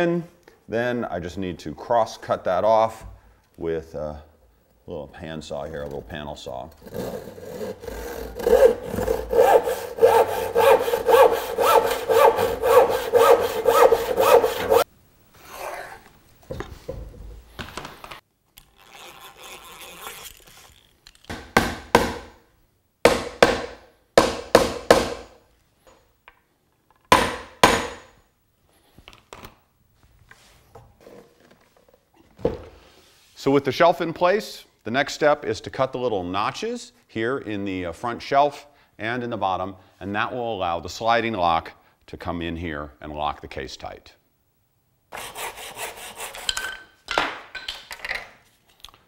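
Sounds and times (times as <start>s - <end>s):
hand saw cutting wood: 6.8s - 14.8s, 45.1s - 46.6s
wooden strokes and scrapes: 6.8s - 14.8s, 32.8s - 33.6s.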